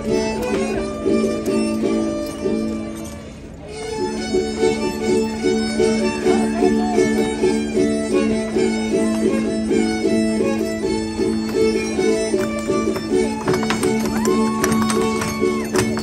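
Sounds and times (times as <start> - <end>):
violin dance tune: 0.0 - 2.9, 3.7 - 16.0.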